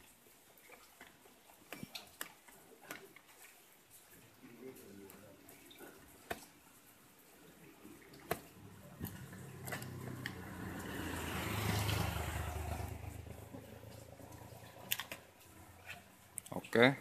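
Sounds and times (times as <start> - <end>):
vehicle passing by: 7.8 - 16.3.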